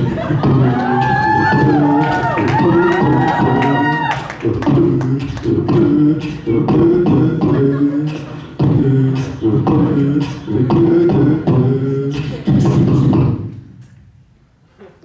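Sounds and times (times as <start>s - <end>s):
beatboxing vocal percussion: 0.0s - 14.0s
hummed bass line: 4.4s - 13.5s.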